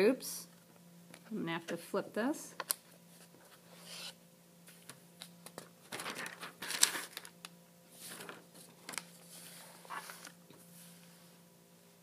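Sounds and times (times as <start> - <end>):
notebook pages rustling: 5.5 - 11.0.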